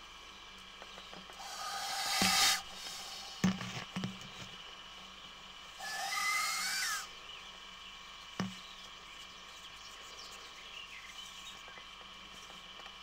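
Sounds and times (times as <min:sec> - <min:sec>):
snake hissing: 0:01.4 - 0:03.4, 0:05.8 - 0:07.1.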